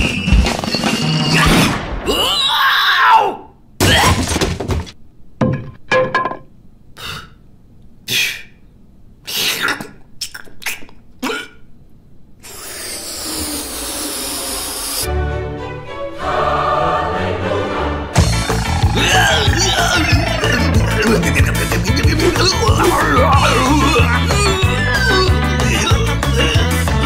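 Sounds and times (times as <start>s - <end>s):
cartoon crash: 0.5s - 3.0s
hiss: 12.4s - 15.1s.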